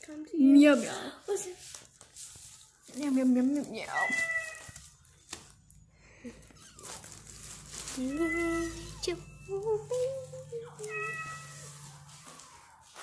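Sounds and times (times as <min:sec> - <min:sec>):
cat meowing: 0:03.9 - 0:04.8, 0:08.0 - 0:09.5, 0:10.6 - 0:12.0.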